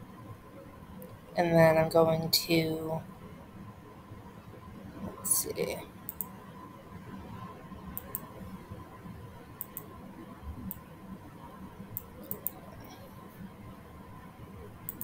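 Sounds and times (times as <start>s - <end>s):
faint steady hum: 0.0s - 15.0s
computer mouse clicking: 6.1s - 6.4s, 7.9s - 8.3s, 9.6s - 10.0s, 10.6s - 10.9s, 11.9s - 12.6s.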